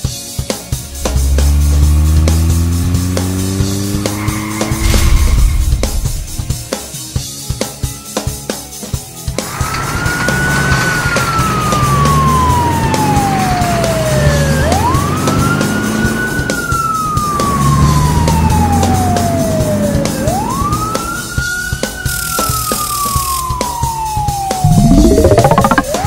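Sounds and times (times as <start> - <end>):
slow wailing siren: 1.0 - 4.9, 10.4 - 26.0.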